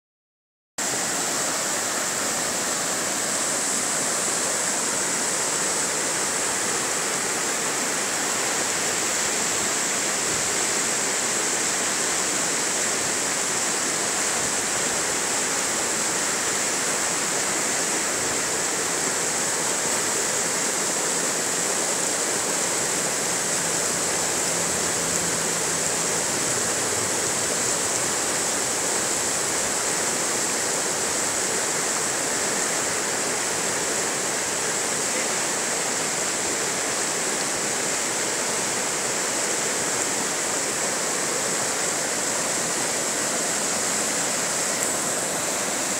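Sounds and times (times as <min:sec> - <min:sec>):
river rushing over rocks: 0:00.8 - 0:45.9.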